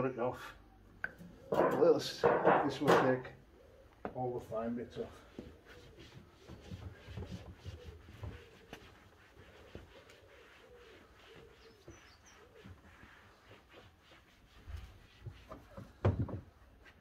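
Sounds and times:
cloth rubbing plastic: 4.8 - 17.0
pigeon cooing: 5.1 - 12.8.

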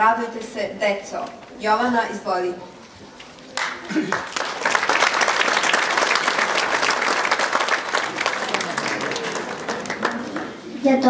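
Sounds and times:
audience applauding: 3.6 - 10.7.

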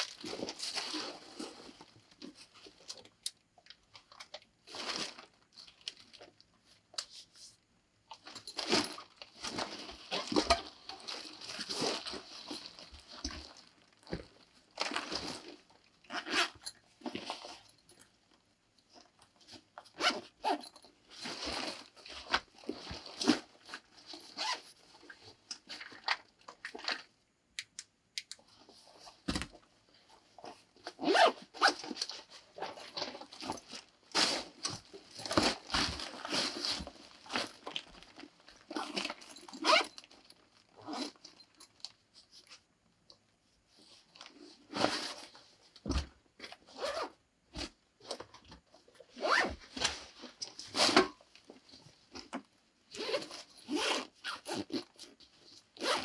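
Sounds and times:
zippers being pulled: 16.1 - 16.7, 20.0 - 20.7, 24.4 - 24.6, 30.9 - 31.9, 38.7 - 40.0, 40.8 - 41.2, 46.7 - 47.2, 49.2 - 49.9, 52.9 - 55.1, 55.8 - 56.0
backpack fabric rustling: 19.9 - 24.6, 30.4 - 41.5, 49.1 - 51.0, 52.9 - 56.0.

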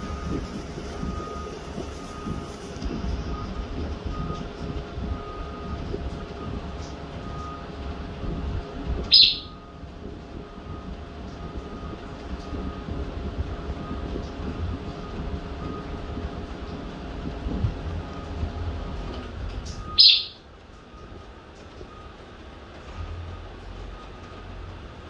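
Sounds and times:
steady low rumble: 0.0 - 25.0
parrot chirping: 9.1 - 9.5, 20.0 - 20.4.

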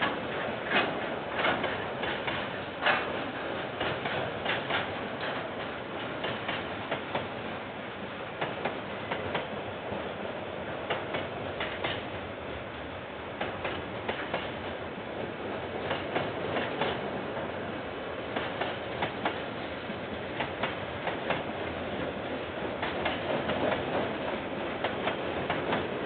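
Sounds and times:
wheels clicking over rail joints: 0.0 - 7.3
train wheels rolling on rails: 0.0 - 26.0.

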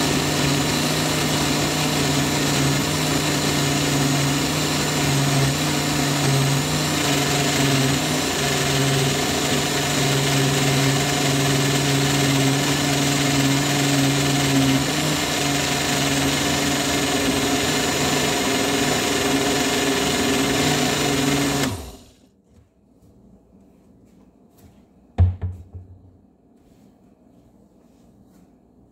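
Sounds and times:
electric blender running: 0.0 - 22.2.

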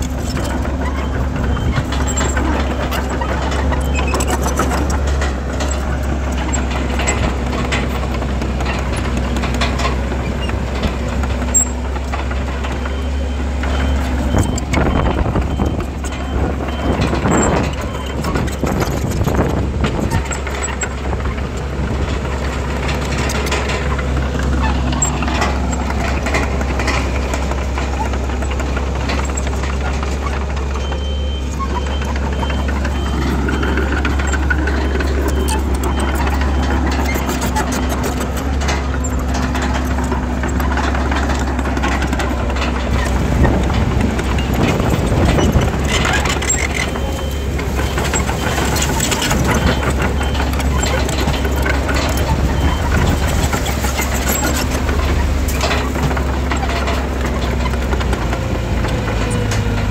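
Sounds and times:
heavy diesel machinery engines: 0.0 - 59.9
high reversing beep: 30.8 - 36.8.

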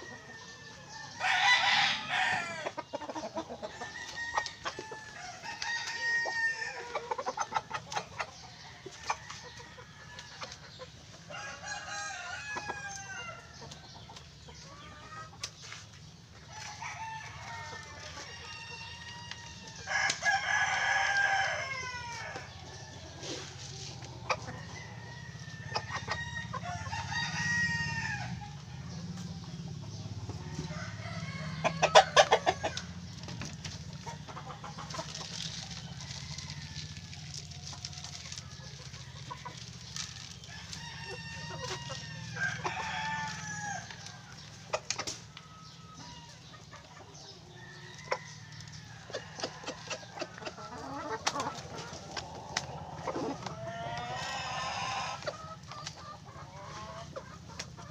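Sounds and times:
chickens clucking: 0.0 - 57.9
rooster crowing: 1.2 - 2.6, 30.4 - 32.9.

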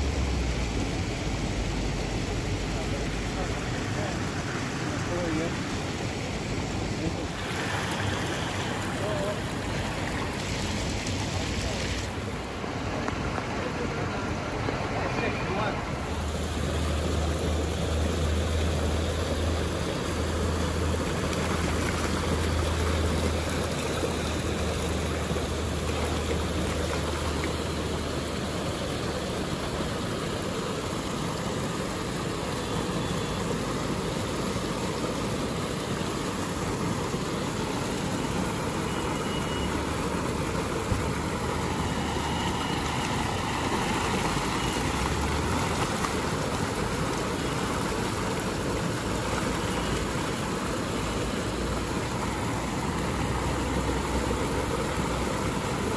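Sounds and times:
water rushing through channel: 0.0 - 55.9
net splashing and fish thrashing: 38.4 - 52.3.

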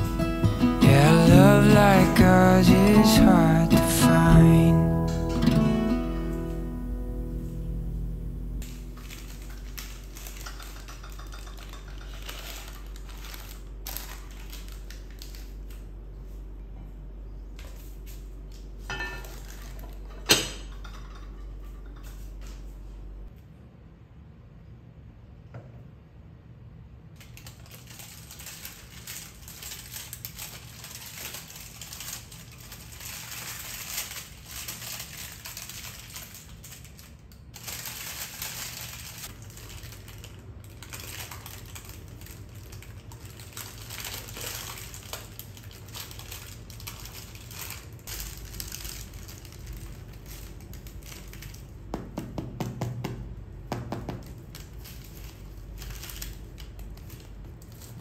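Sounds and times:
parchment paper crinkling: 8.6 - 16.4, 27.2 - 52.0, 54.1 - 58.0.

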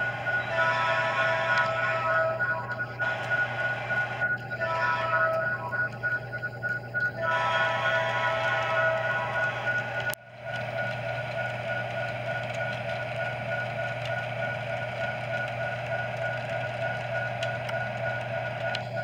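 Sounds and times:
model train motor hum: 0.0 - 6.2, 7.2 - 19.0
high whine: 0.0 - 19.0
wheels rumbling on track: 0.0 - 19.0.

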